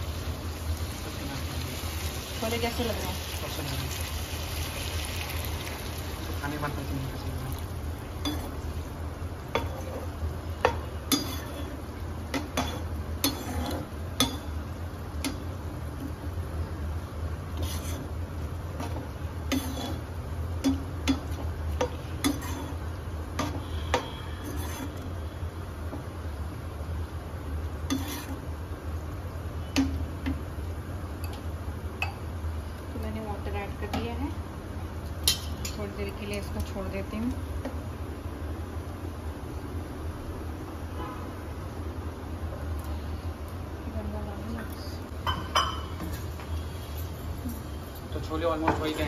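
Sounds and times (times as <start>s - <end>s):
metal spoon scraping a pan: 8.2s - 8.6s, 9.5s - 14.6s, 17.5s - 18.2s, 18.8s - 22.8s, 23.4s - 25.3s, 27.9s - 28.4s.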